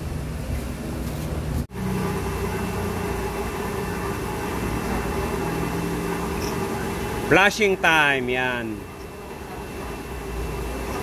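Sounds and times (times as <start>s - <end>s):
machine humming and hissing: 0.0s - 11.0s.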